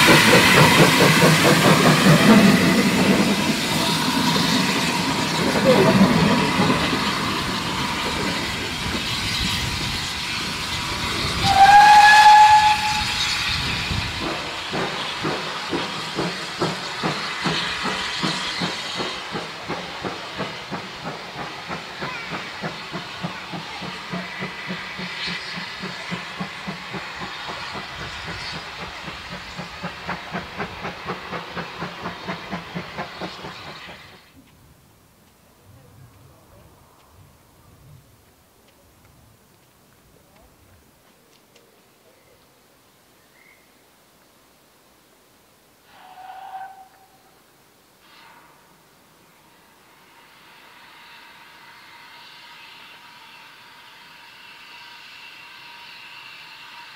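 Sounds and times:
steam hiss: 0.0s - 34.4s, 45.7s - 56.9s
regular train beat: 0.0s - 56.9s
steam train passing: 0.0s - 56.9s
steam whistle: 11.4s - 13.6s, 45.9s - 47.4s, 48.0s - 56.9s.

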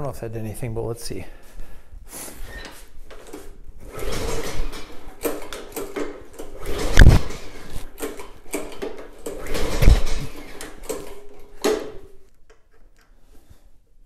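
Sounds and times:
mower engine turning over: 3.1s - 12.0s.

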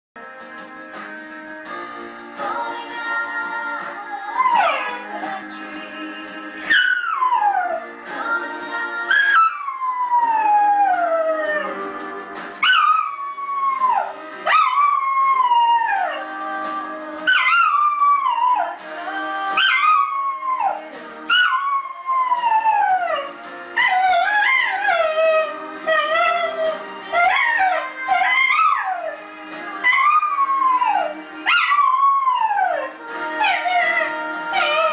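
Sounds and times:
music: 0.2s - 34.9s
dog howling: 12.7s - 16.3s, 19.6s - 29.2s, 29.8s - 34.9s.

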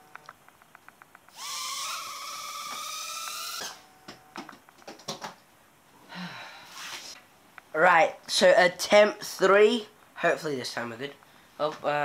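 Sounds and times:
tiny drone motors whining: 1.3s - 3.9s.

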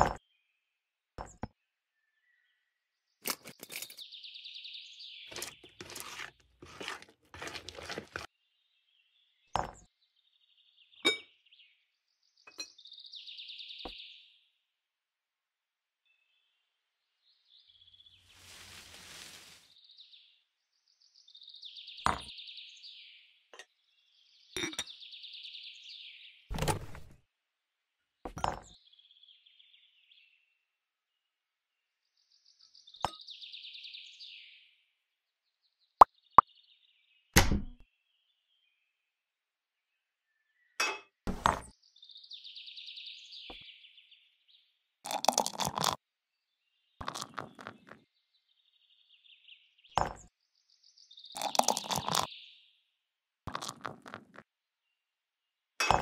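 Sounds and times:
toy kitchenware clinking: 3.3s - 4.0s, 5.3s - 8.3s.

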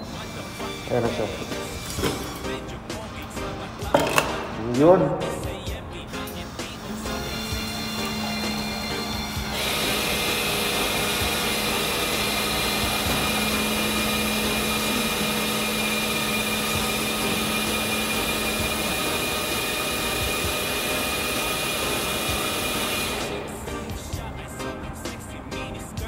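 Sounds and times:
vending machine hissing: 0.0s - 26.0s
held tones: 6.9s - 22.1s.

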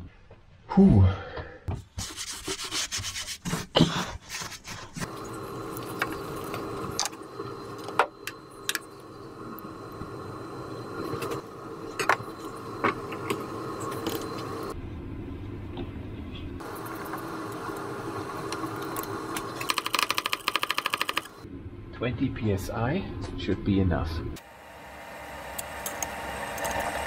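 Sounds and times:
steady hum: 5.0s - 23.2s, 24.2s - 27.0s.

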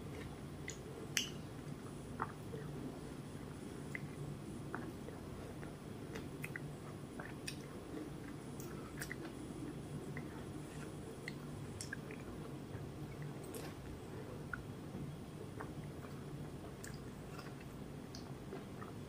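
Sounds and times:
steady low hum: 0.0s - 19.0s
person eating wet mouth sounds: 3.8s - 14.7s, 15.5s - 19.0s.

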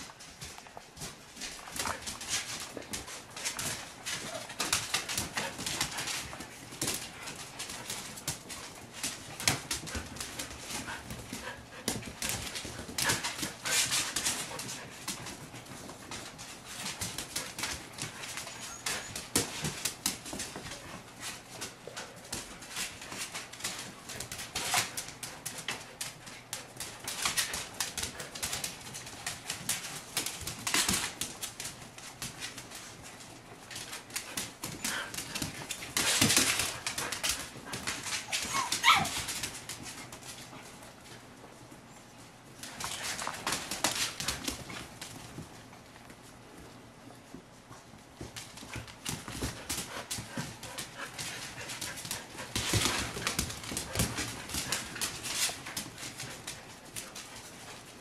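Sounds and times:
puppies whimpering and yipping: 38.3s - 39.3s.

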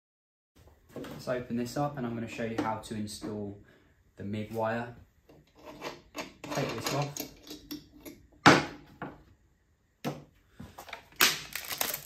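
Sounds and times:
plastic wrapping crinkling: 10.9s - 12.0s.

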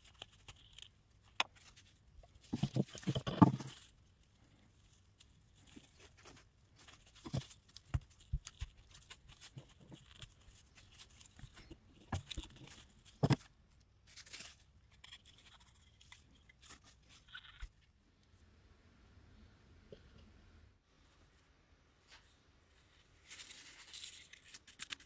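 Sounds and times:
soft scraping and rustling: 21.0s - 24.5s.

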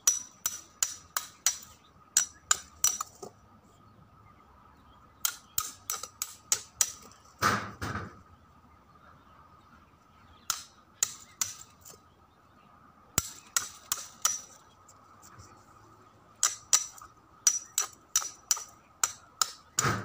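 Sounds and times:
hammer striking knife blade: 0.0s - 3.2s, 5.2s - 7.0s, 13.2s - 14.6s, 16.4s - 19.6s.

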